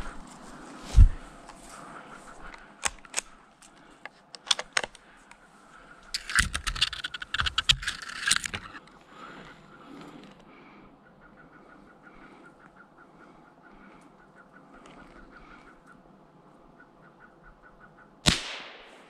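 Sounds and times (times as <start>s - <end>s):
footsteps through dry brush: 0.0s - 2.8s
twigs snapping and crackling: 2.4s - 5.4s.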